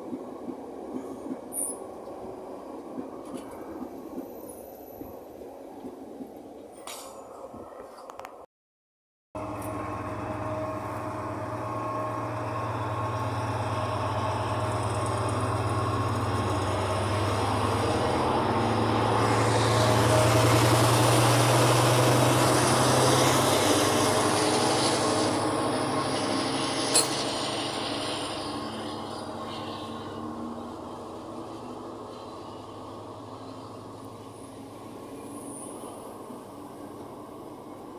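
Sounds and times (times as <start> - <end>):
rolling train wagons: 0.0 - 8.4, 9.4 - 37.9
diesel locomotive engine hum: 0.0 - 8.5, 9.4 - 37.9.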